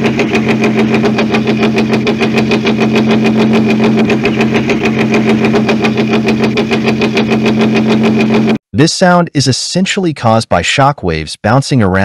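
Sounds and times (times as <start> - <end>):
engine hum: 0.0 - 8.6
engine knocking: 0.0 - 8.6.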